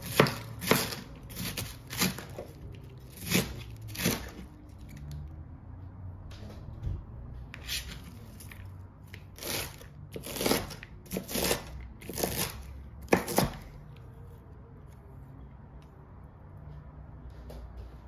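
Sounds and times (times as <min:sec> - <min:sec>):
knife slicing cabbage on board: 0:00.0 - 0:04.6, 0:07.5 - 0:13.7.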